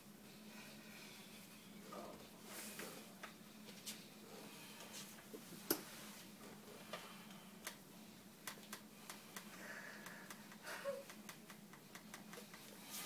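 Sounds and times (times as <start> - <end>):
faint low hum: 0.0 - 13.0
small clicks and taps: 8.4 - 12.7.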